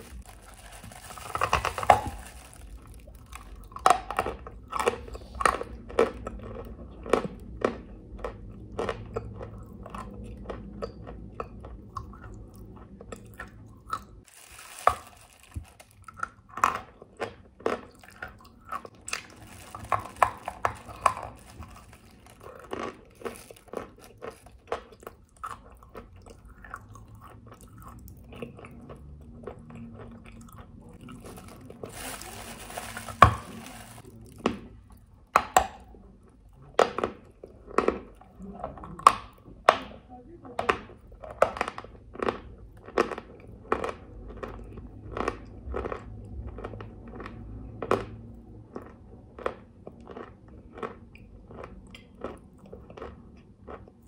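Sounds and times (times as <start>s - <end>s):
rustling: 0.0s - 3.0s, 31.1s - 34.3s.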